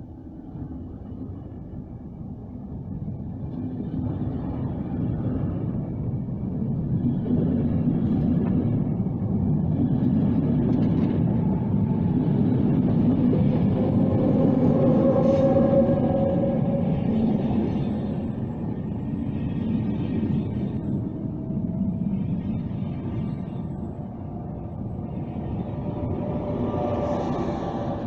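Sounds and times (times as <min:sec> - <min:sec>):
train wheels rumbling: 0:06.8 - 0:28.0.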